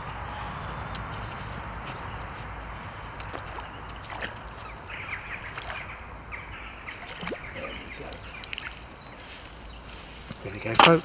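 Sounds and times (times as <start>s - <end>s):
small birds chirping: 1.9s - 11.0s
light water splashing: 3.2s - 6.1s, 6.8s - 11.0s.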